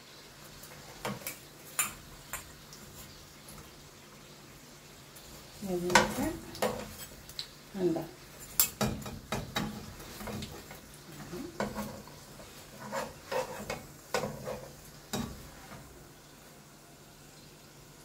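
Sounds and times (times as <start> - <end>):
faint oil sizzle: 0.0 - 18.0
spoon and spatula scraping a pan: 0.5 - 3.8, 5.1 - 7.6, 8.2 - 16.0.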